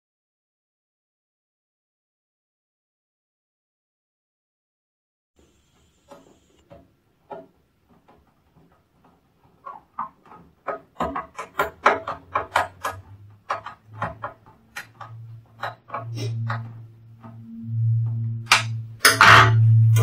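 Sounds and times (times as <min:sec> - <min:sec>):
low steady hum: 0:14.5 - 0:20.0.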